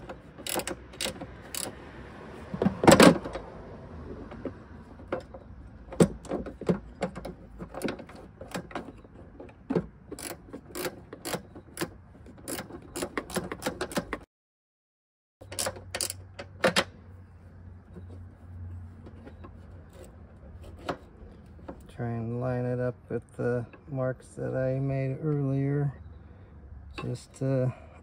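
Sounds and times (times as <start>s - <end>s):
ratchet wrench clicking: 0.0s - 1.8s, 10.1s - 14.2s, 15.4s - 16.4s.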